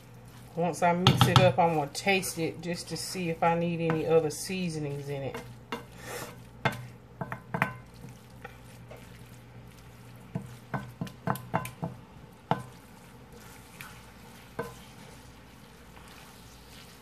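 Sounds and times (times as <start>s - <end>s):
wooden spoon scraping a skillet: 0.0s - 17.0s
spoon knocking against pan: 6.6s - 7.9s, 10.3s - 12.7s.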